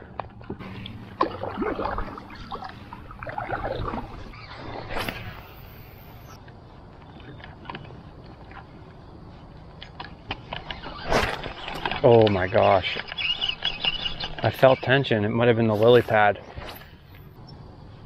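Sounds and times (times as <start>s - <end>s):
water sloshing around paddle board: 0.6s - 5.6s.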